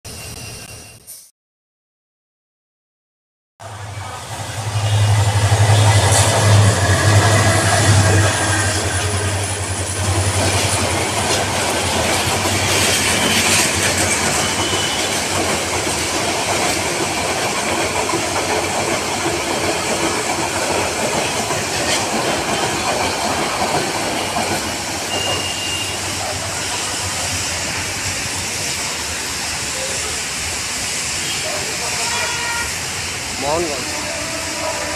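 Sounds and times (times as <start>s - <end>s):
diesel locomotive engine drone: 3.6s - 34.9s
train wheels clattering: 5.0s - 29.0s
high wheel squeals: 13.1s - 15.3s, 25.0s - 28.2s.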